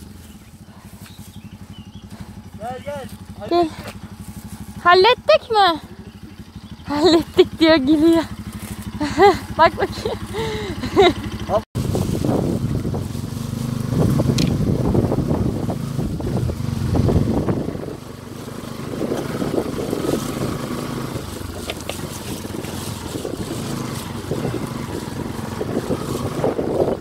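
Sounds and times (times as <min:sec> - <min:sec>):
motorcycle engine running: 0:00.0 - 0:27.0
rumble and knocks of ride: 0:11.0 - 0:27.0.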